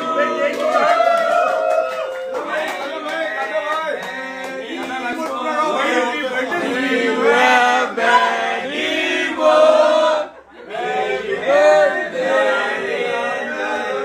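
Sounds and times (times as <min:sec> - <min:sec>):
group singing in unison: 0:04.1 - 0:14.0.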